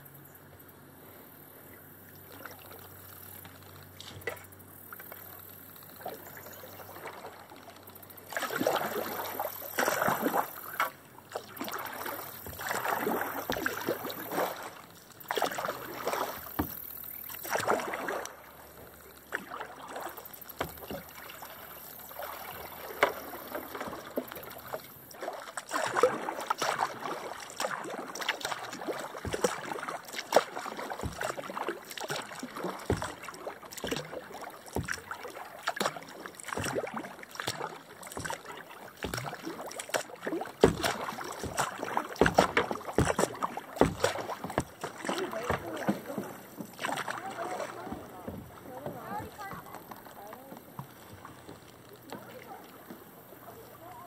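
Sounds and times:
kayak paddle splashing: 0:00.0 - 0:54.0.

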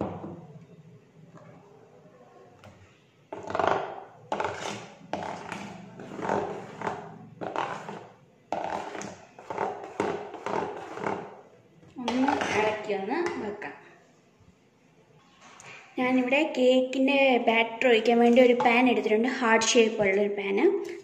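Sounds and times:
spoon scraping a mixing bowl: 0:03.3 - 0:11.4, 0:12.1 - 0:13.6.

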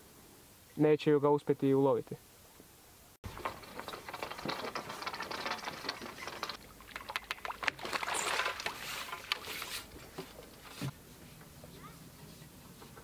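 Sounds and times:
water splashing and dripping: 0:03.2 - 0:09.7
clicks and knocks of handling: 0:03.2 - 0:10.9.

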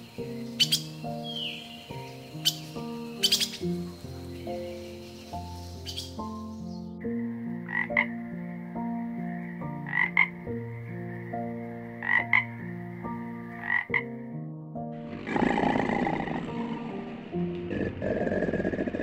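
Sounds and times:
background music sustained notes: 0:00.0 - 0:19.0
frog croaking: 0:07.2 - 0:14.2, 0:15.0 - 0:19.0.

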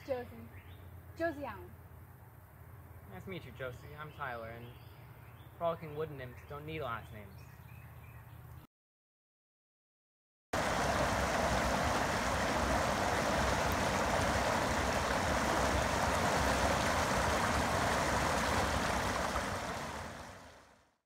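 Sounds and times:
water pouring over a weir: 0:10.6 - 0:20.7.

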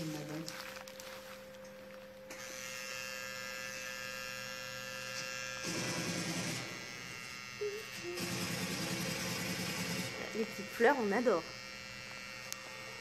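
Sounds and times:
tattoo machine buzzing: 0:00.0 - 0:13.0
loud burst of noise: 0:05.6 - 0:06.7, 0:08.2 - 0:10.1.

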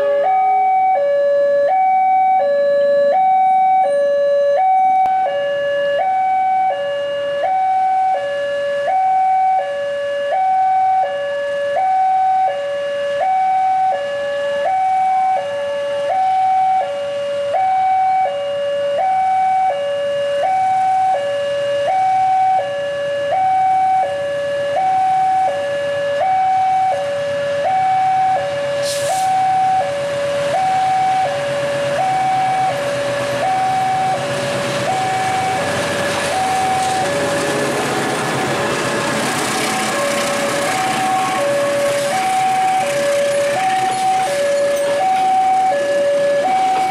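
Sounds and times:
two-tone crossing alarm: 0:00.0 - 0:46.9
diesel locomotive running: 0:23.4 - 0:46.9
short air hiss: 0:28.8 - 0:29.4.

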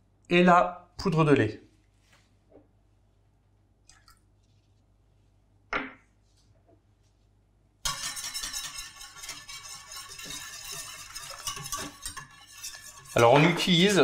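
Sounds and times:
wire whisk rattling in metal pan: 0:07.8 - 0:14.0.

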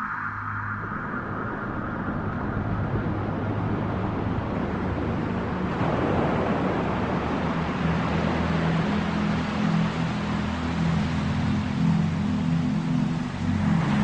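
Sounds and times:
whoosh of noise: 0:00.0 - 0:07.1
low steady drone: 0:00.0 - 0:14.0.

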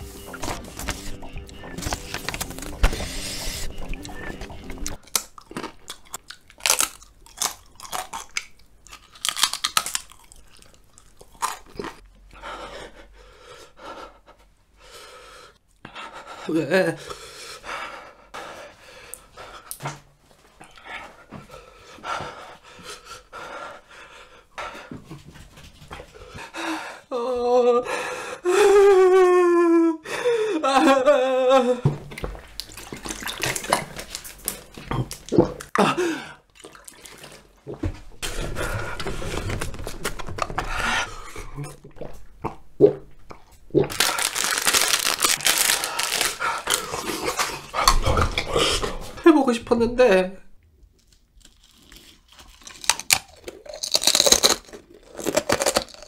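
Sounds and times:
heavy breathing: 0:00.0 - 0:05.0, 0:12.3 - 0:19.8, 0:20.6 - 0:27.1, 0:27.8 - 0:28.8, 0:38.2 - 0:41.8, 0:45.5 - 0:49.2
person drinking: 0:00.0 - 0:06.4, 0:31.8 - 0:49.2
plastic wrapper crinkling and tearing: 0:00.3 - 0:03.7, 0:04.9 - 0:12.0, 0:32.6 - 0:35.4, 0:38.4 - 0:40.7, 0:43.8 - 0:48.4, 0:50.9 - 0:56.0
man panting hard: 0:12.3 - 0:19.8, 0:20.8 - 0:27.1, 0:27.8 - 0:28.8, 0:30.0 - 0:30.6.

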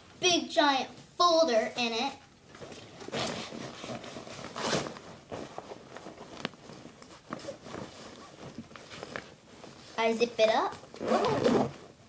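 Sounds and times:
folder rustling in backpack: 0:02.6 - 0:10.0.

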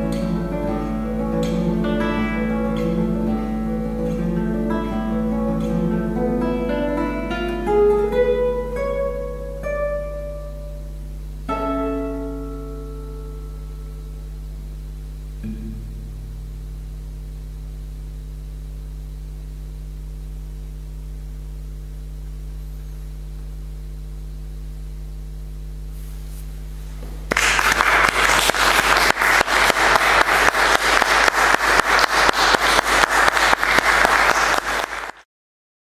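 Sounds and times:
low steady hum: 0:00.0 - 0:35.1
audience applauding: 0:27.2 - 0:35.2.

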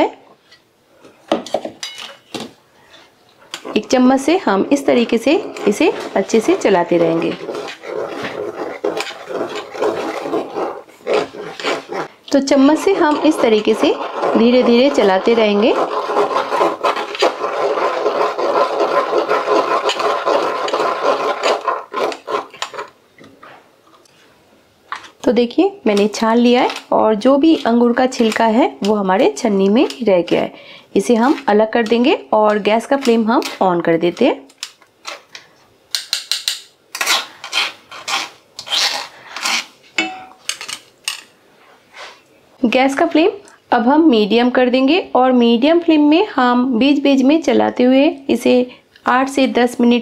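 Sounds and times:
spatula scraping against mesh strainer: 0:02.8 - 0:22.9, 0:25.9 - 0:33.7.

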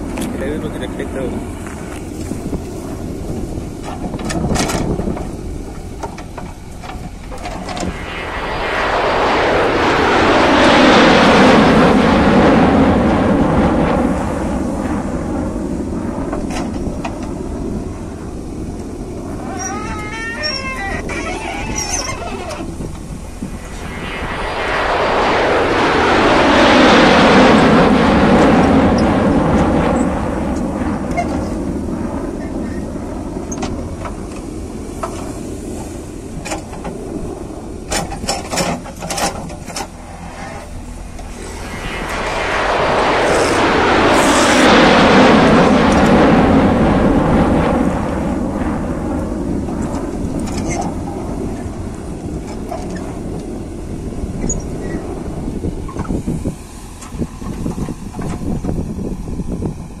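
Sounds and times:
diesel engine under load: 0:55.6 - 1:00.0.

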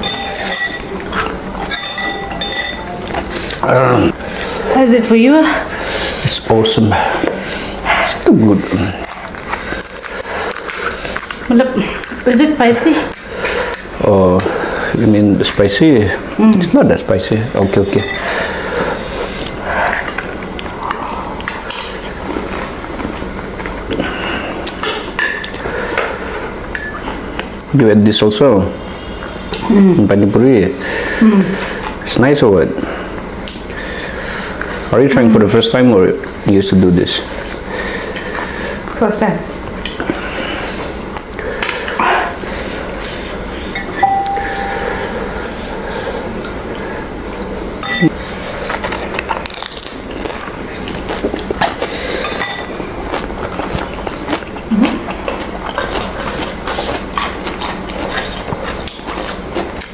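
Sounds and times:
metal spoon clinking on glass bowls: 0:00.0 - 0:01.0, 0:01.6 - 0:03.0, 0:17.9 - 0:18.3, 0:26.7 - 0:27.1, 0:47.8 - 0:48.1
chewing: 0:00.9 - 0:01.8, 0:07.2 - 0:14.8, 0:17.8 - 0:27.7, 0:37.3 - 0:39.0, 0:39.6 - 0:59.9
crisp shells cracking: 0:08.8 - 0:12.5.

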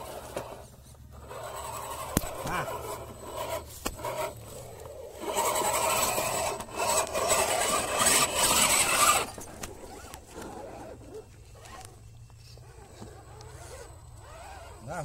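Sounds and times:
tyres scraping on stone: 0:00.0 - 0:12.0
electric motor and gearbox whining: 0:00.0 - 0:15.0.

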